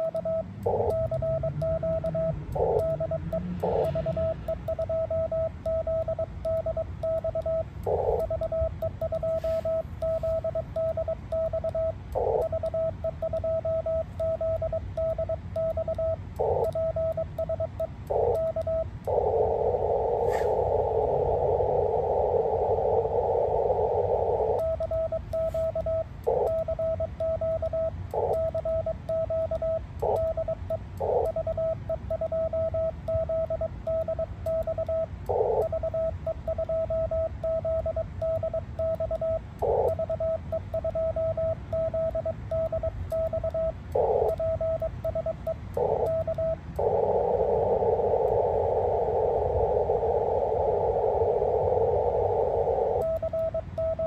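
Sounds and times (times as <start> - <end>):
morse code tones: 0.0 - 54.0
radio receiver hiss: 9.3 - 10.4, 19.1 - 24.6, 45.8 - 53.2.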